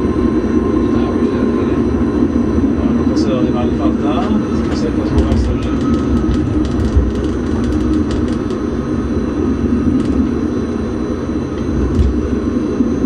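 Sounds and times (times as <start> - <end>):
tram wheels on rails: 4.1 - 8.8, 9.9 - 10.4, 11.6 - 12.3.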